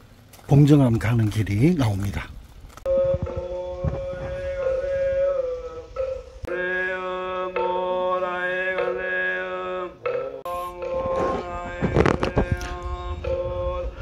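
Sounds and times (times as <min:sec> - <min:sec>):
chant with long held notes: 0:02.8 - 0:14.0
low steady drone: 0:02.9 - 0:09.8, 0:10.4 - 0:14.0.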